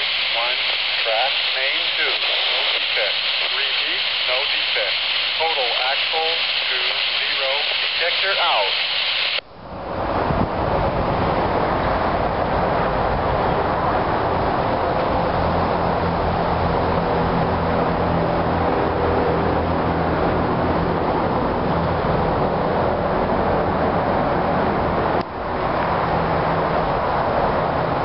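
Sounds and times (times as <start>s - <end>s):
continuous rushing noise: 0.0s - 28.0s
diesel locomotive engine drone: 0.0s - 28.0s.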